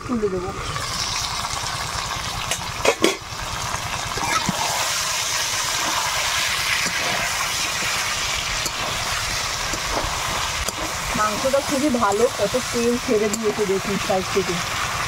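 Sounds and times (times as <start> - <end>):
chicken sizzling in oil: 0.0 - 15.0
spatula scraping pan: 4.1 - 14.0.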